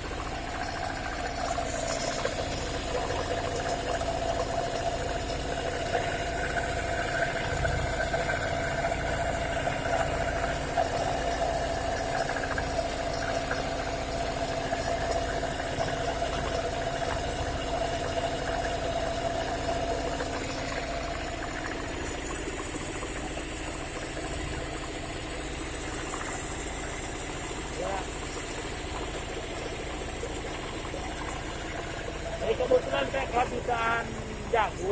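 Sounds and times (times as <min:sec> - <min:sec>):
engine-driven grinding mill: 0:00.0 - 0:34.9.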